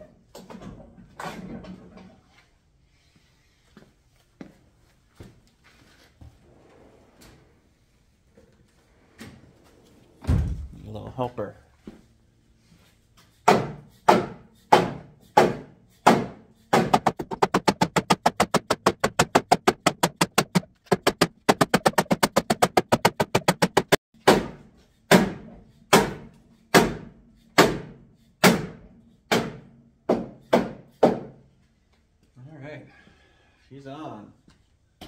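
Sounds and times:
rubber mallet hammering pipe: 13.4 - 31.3.

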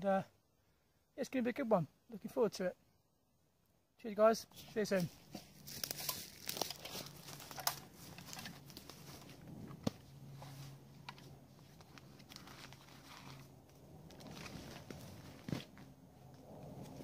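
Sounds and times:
rustling and crinkling: 4.5 - 17.0
crackles: 5.0 - 17.0.

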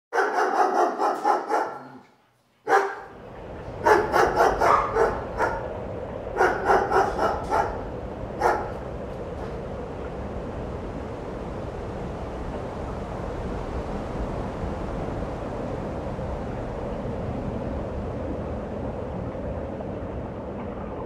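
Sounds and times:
dog barking: 0.1 - 3.2, 3.8 - 8.8.

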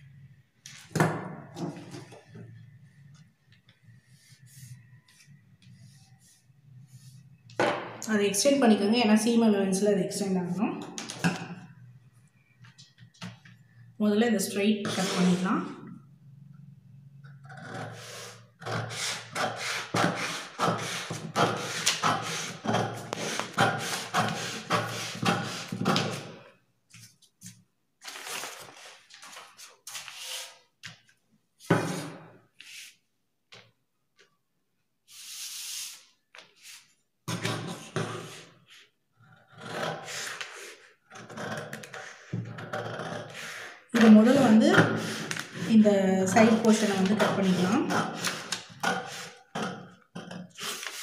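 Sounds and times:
paper rustle: 27.0 - 30.5.

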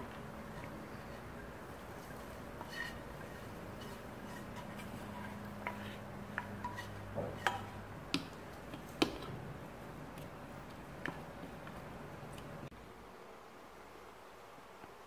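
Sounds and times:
utensils scraping a frying pan: 0.4 - 7.9.

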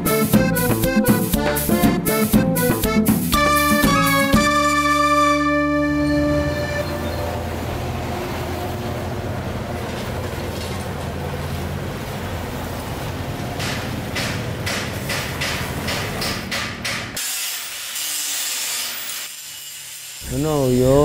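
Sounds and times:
rhythmic rasping strokes: 0.0 - 6.8.

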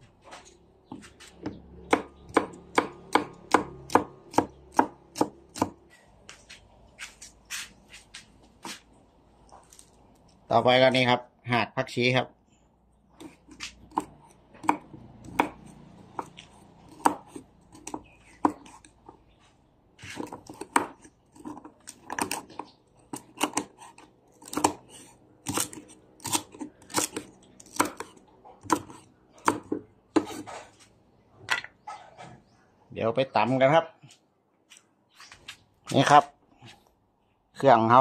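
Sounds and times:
knife chopping on wooden block: 0.9 - 5.8, 13.2 - 19.2, 20.0 - 30.6.

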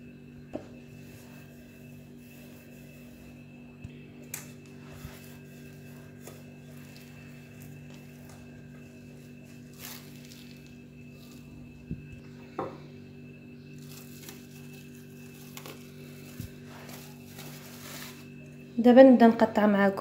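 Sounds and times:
steady low hum: 0.0 - 20.0
rolling pin rubbing dough: 0.7 - 3.7, 4.7 - 12.1.

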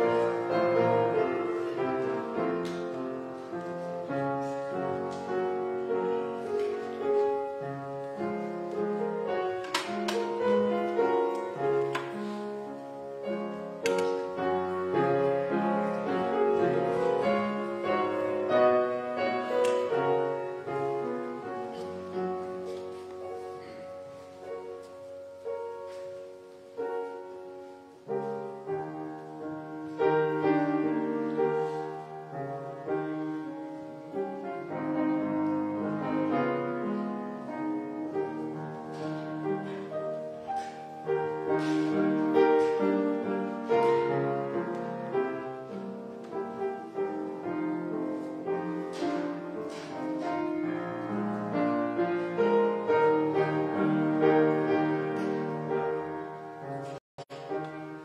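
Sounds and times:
slow solo keyboard music: 0.0 - 58.0.

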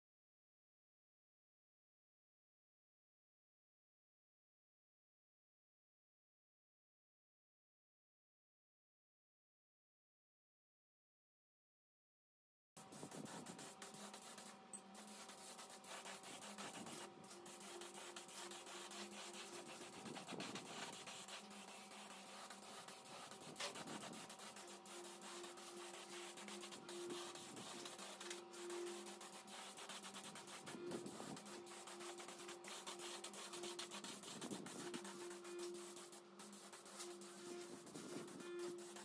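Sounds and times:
rapid rubbing strokes on metal: 12.8 - 39.0.

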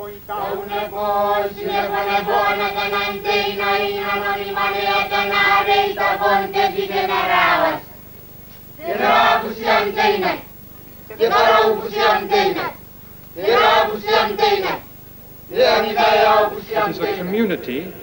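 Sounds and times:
group of voices chanting: 0.0 - 7.9, 11.1 - 12.8, 13.4 - 14.8, 15.5 - 18.0.

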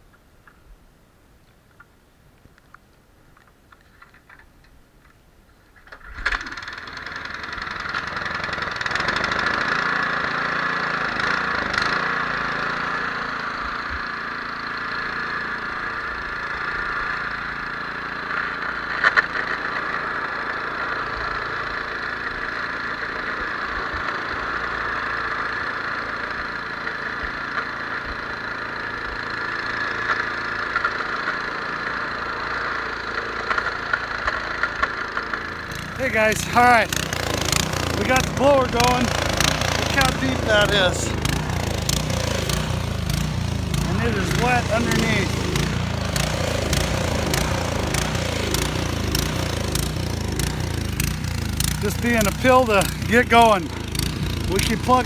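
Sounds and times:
snowblower engine running: 5.9 - 55.0.

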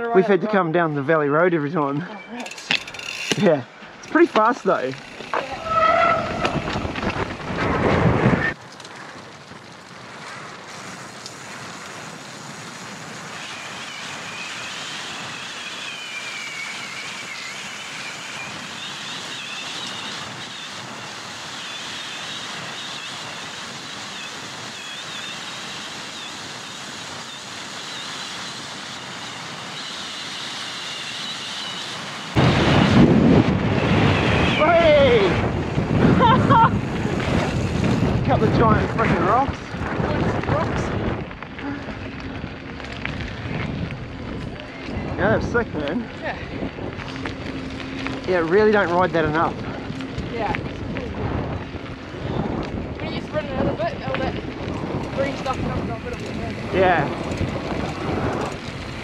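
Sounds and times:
tyres rolling on gravel: 1.5 - 59.0
wind on microphone: 5.3 - 8.6, 31.8 - 59.0
high wavering whine: 13.3 - 39.6, 42.0 - 59.0.

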